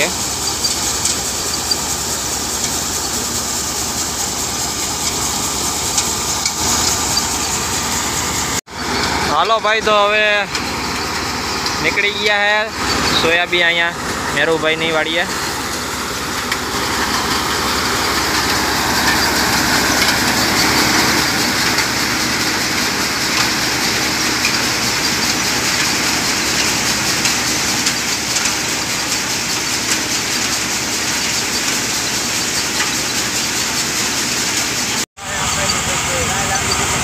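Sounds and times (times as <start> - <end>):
thresher running: 0.0 - 37.0
tractor engine drone: 0.0 - 37.0
beans pouring down chute: 9.3 - 37.0.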